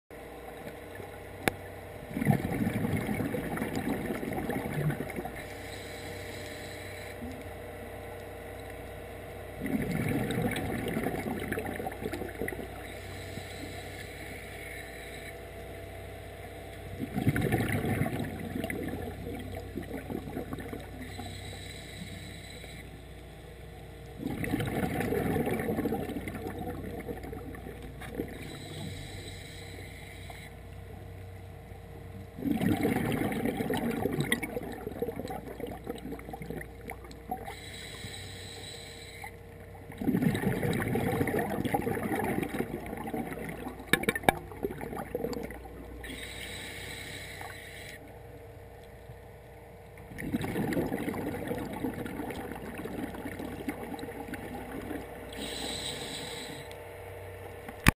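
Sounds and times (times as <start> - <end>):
exhaled bubbles underwater: 0.3 - 5.9, 8.8 - 15.5, 16.8 - 22.9, 24.0 - 29.3, 32.2 - 38.1, 39.2 - 57.9
regulator hissing inhale: 5.4 - 7.2, 12.8 - 15.4, 21.0 - 23.2, 28.4 - 30.6, 37.4 - 39.4, 46.0 - 48.1, 55.3 - 56.8.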